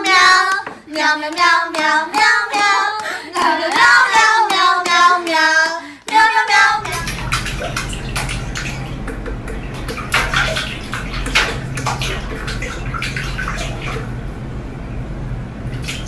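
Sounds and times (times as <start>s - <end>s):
water splashing in metal sink: 6.8s - 14.3s, 15.7s - 16.0s.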